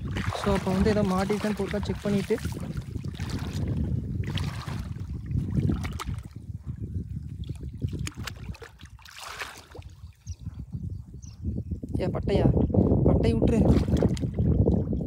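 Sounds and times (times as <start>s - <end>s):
water sloshing and splashing: 0.0s - 10.3s, 13.5s - 15.0s.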